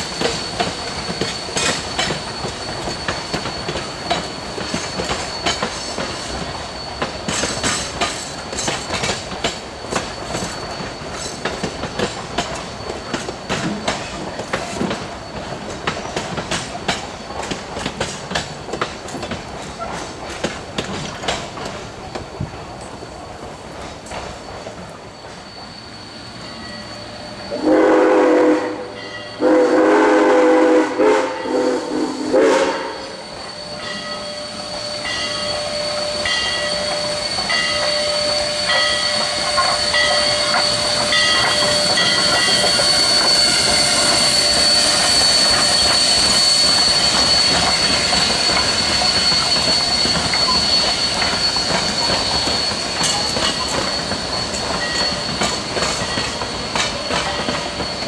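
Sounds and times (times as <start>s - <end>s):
high wheel squeal: 0.0s - 58.0s
wheels clicking over rail joints: 0.1s - 25.4s, 38.7s - 58.0s
train horn blasts: 27.5s - 33.2s.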